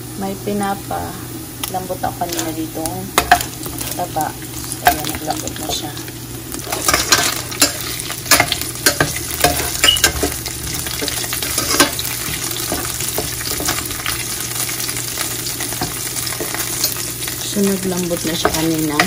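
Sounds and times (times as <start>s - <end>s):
pork sizzling in a pan: 0.0s - 19.0s
metal spoon scraping and clinking: 6.7s - 10.4s, 11.0s - 13.9s.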